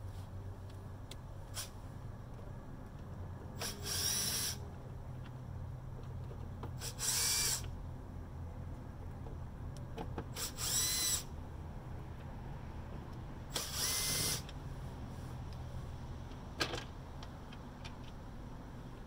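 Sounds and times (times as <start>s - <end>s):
cordless drill whirring: 3.6s - 4.6s, 6.8s - 7.7s, 10.4s - 11.3s, 13.5s - 14.5s.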